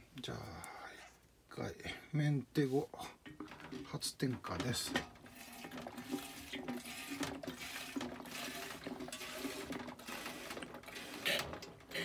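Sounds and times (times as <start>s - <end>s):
liquid pouring: 4.6s - 12.0s.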